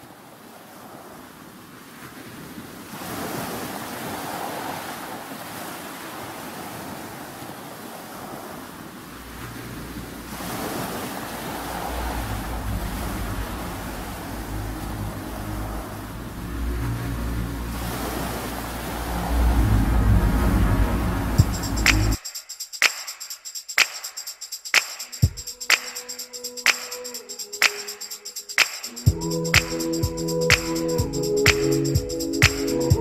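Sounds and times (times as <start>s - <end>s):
rushing sea water: 0.0s - 22.2s
wind buffeting microphone: 8.1s - 22.1s
low steady hum: 11.3s - 22.2s.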